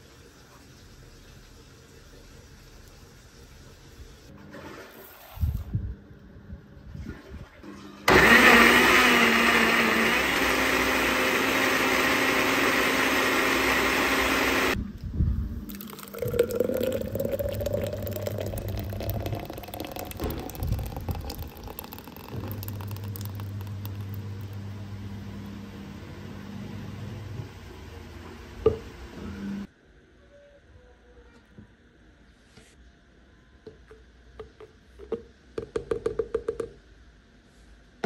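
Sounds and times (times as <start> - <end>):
blender motor running: 8.1 - 14.8, 15.8 - 27.2
smoothie pouring into glass: 8.1 - 14.8, 15.7 - 24.8.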